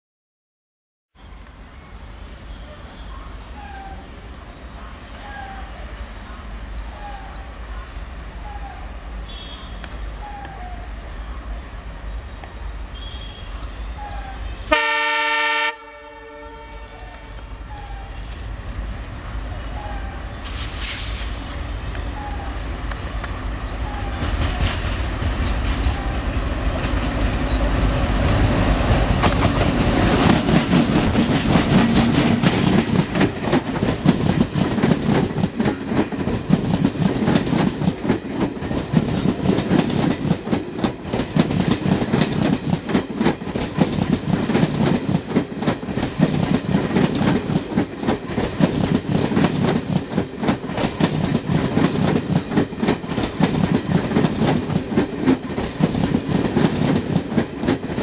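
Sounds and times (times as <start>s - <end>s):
diesel locomotive horn blast: 9.2s - 9.9s, 14.4s - 18.0s
train wheels clattering over rail joints: 22.7s - 58.0s.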